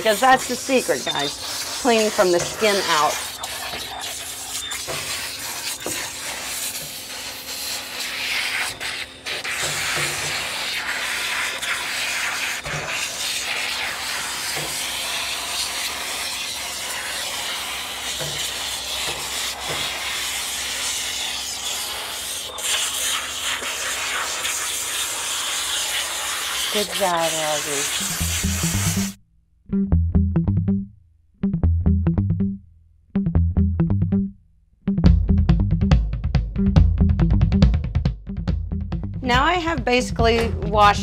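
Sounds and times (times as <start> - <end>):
hands rubbing lather: 0.0 - 14.9, 25.7 - 29.2
water spray on dog's coat: 0.0 - 29.2.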